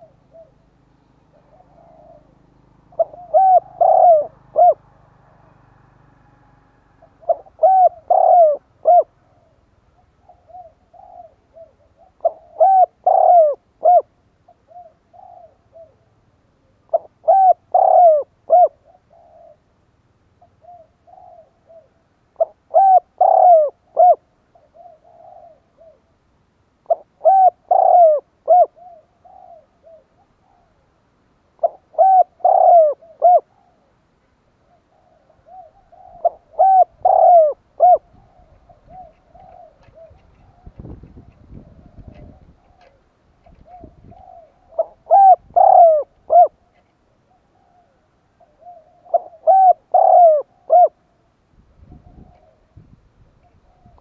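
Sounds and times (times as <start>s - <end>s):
dove cooing: 0.0s - 26.2s, 26.8s - 54.0s.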